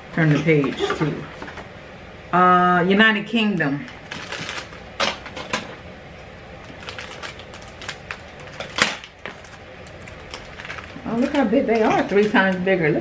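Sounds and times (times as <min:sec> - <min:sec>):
plastic wrapper crinkling: 0:03.6 - 0:04.9, 0:06.6 - 0:12.7.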